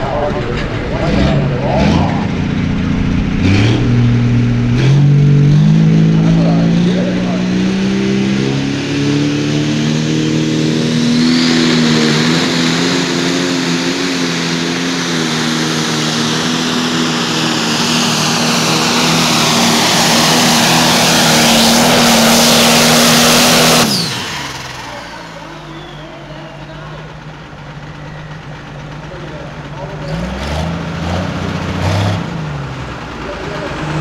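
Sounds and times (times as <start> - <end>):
diesel tractor engine under load: 0.0 - 34.0
high engine whine: 0.0 - 34.0.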